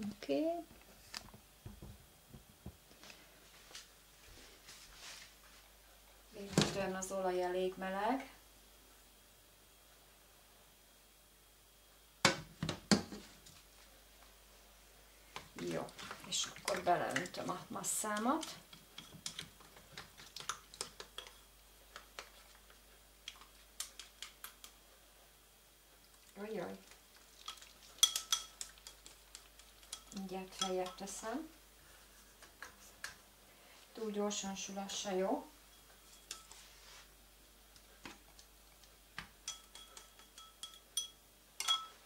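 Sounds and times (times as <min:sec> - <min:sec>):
hot oil crackling in a pan: 0:25.6 - 0:31.0
kitchenware clicking and clinking: 0:27.4 - 0:29.1, 0:29.8 - 0:31.2, 0:39.4 - 0:42.0.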